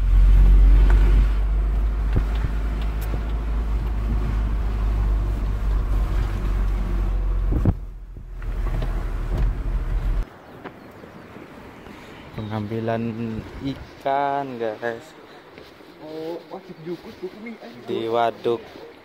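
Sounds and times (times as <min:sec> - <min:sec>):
car engine rumble: 0:00.0 - 0:10.4
road noise: 0:00.0 - 0:19.0.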